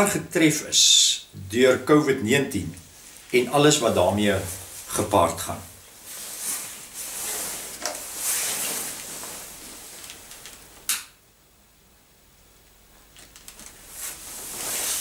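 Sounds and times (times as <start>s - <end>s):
jacket rustling: 2.9s - 10.7s, 13.7s - 15.0s.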